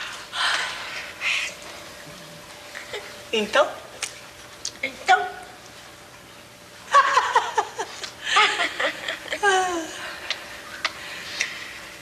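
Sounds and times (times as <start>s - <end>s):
woman laughing: 6.9s - 10.0s.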